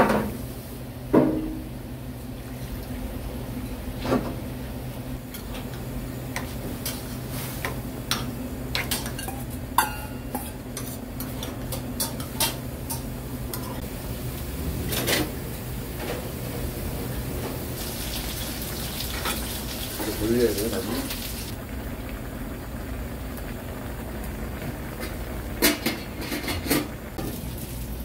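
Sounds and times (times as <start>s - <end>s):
dishes and pots clinking: 5.2s - 13.8s, 25.0s - 27.4s.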